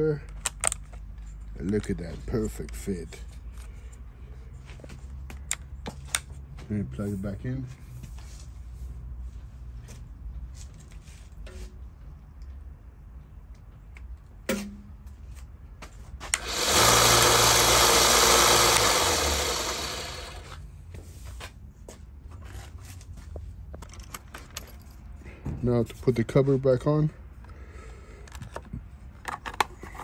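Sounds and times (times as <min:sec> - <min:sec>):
belt sander motor running: 0:16.3 - 0:20.6.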